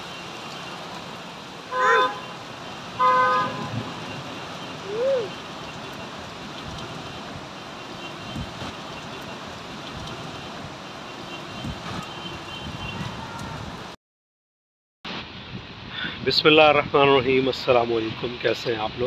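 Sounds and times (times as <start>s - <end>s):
heavy rain pouring: 0.0s - 14.0s
car horn honking: 1.7s - 4.3s.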